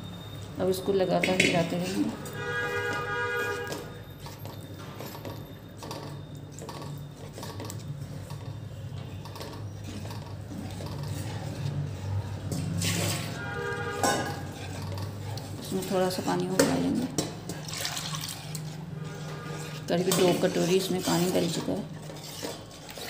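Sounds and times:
spoon stirring batter in a pan: 0:00.8 - 0:23.0.

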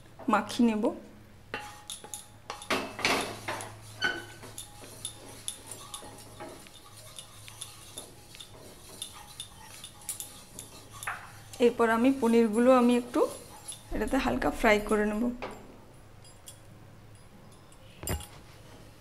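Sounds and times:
spatula scraping a metal pan: 0:01.6 - 0:15.0
light knocks and clinks: 0:13.9 - 0:18.5.

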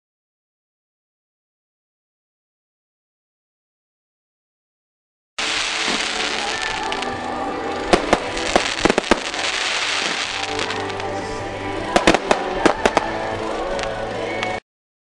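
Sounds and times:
fireworks bangs and cracks: 0:05.4 - 0:14.6
music: 0:05.4 - 0:14.6.

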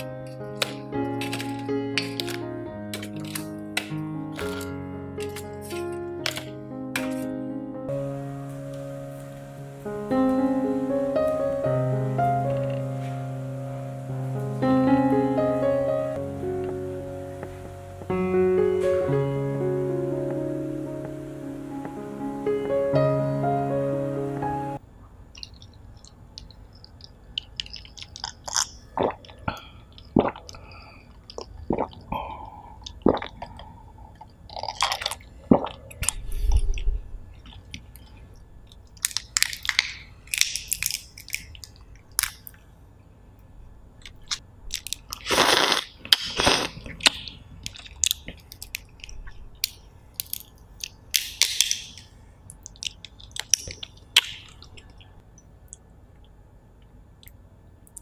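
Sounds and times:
lobster shells cracking: 0:00.0 - 0:07.3, 0:25.4 - 0:31.6, 0:37.4 - 0:42.6, 0:44.0 - 0:55.0
wet chewing: 0:25.4 - 0:32.1, 0:44.2 - 0:55.8.

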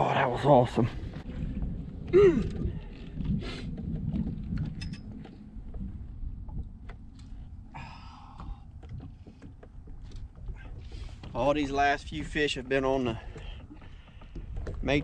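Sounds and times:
water around boat: 0:00.0 - 0:15.0
wind: 0:00.0 - 0:15.0
fishing tackle clicks and knocks: 0:02.4 - 0:07.6, 0:08.3 - 0:15.0.

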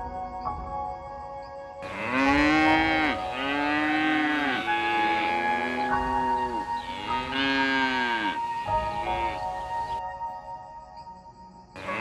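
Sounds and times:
soft background music: 0:00.0 - 0:12.0
cow mooing: 0:01.8 - 0:09.5.

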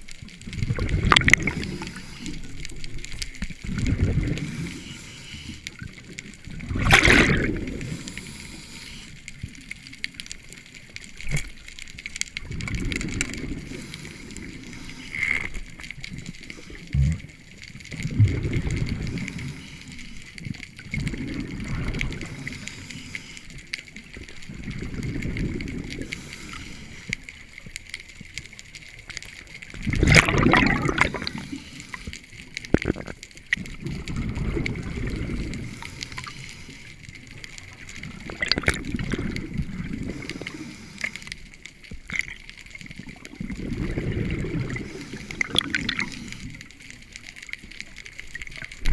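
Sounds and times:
underwater bubbles gurgling: 0:00.0 - 0:48.9
diver breathing through regulator: 0:01.4 - 0:02.7, 0:03.9 - 0:05.8, 0:07.0 - 0:09.4, 0:13.0 - 0:15.6, 0:18.4 - 0:20.4, 0:21.3 - 0:23.8, 0:25.3 - 0:27.3, 0:30.8 - 0:32.5, 0:34.8 - 0:37.2, 0:39.1 - 0:41.5, 0:43.7 - 0:46.8.

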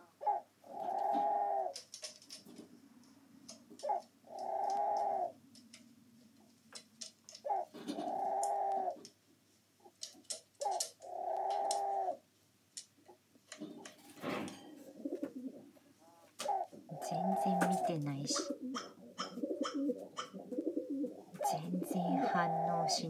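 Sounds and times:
crow calls played back: 0:00.0 - 0:01.9, 0:03.8 - 0:05.4, 0:07.4 - 0:09.0, 0:10.6 - 0:12.2, 0:16.0 - 0:23.0.

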